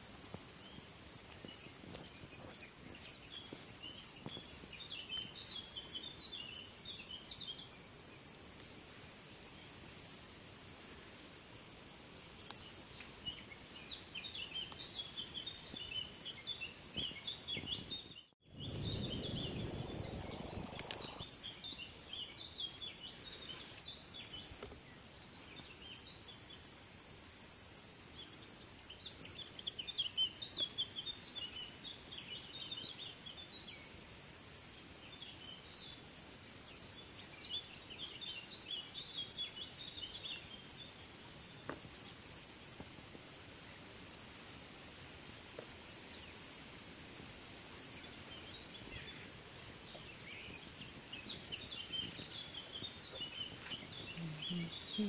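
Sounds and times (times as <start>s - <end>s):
songbirds twittering: 0.0s - 55.0s
low rustling noise: 7.7s - 25.8s.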